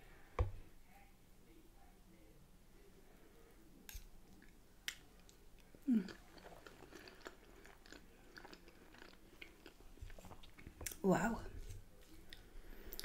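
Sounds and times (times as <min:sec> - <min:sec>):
wet chewing with smacks: 0:06.0 - 0:11.0.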